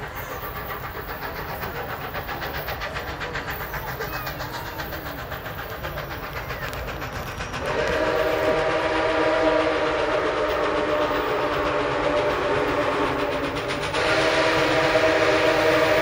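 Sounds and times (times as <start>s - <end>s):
steam locomotive exhaust beat: 0.0s - 16.0s
steam whistle chord: 7.6s - 16.0s.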